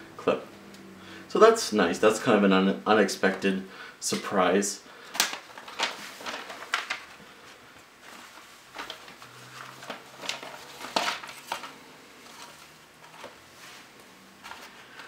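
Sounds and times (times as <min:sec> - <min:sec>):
tissue paper crinkling: 0:05.2 - 0:15.0.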